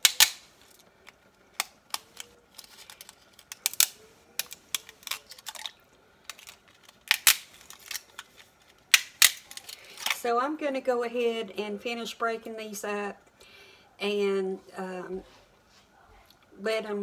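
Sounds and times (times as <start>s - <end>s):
dry noodles snapping: 0.0s - 8.2s.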